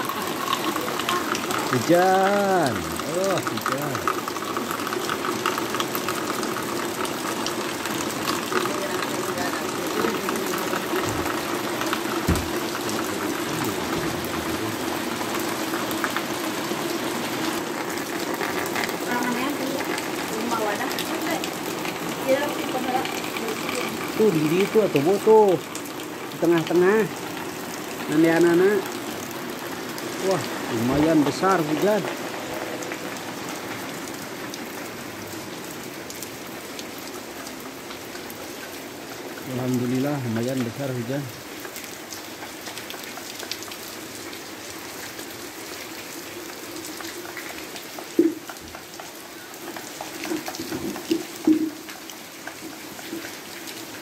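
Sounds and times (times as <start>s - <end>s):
heavy rain pouring: 0.0s - 54.0s
low thump: 12.2s - 12.7s.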